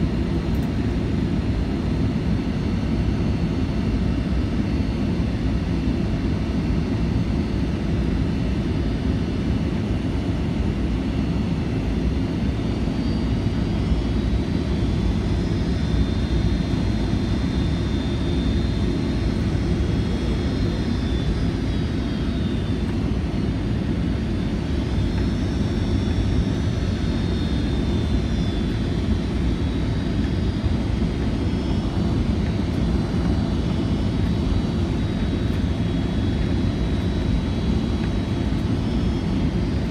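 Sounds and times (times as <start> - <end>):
faint high engine whine: 0.0 - 39.9
airplane cabin rumble: 18.8 - 39.9.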